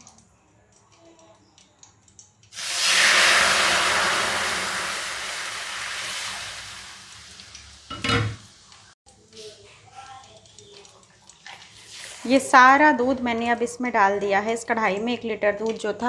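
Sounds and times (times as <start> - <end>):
milk sizzling in hot pan: 2.4 - 13.0.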